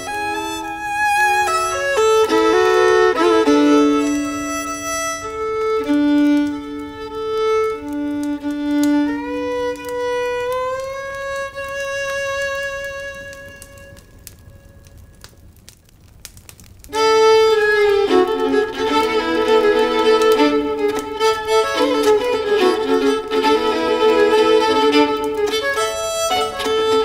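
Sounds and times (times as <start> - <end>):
violin playing a tune: 0.0 - 14.2, 16.9 - 27.0.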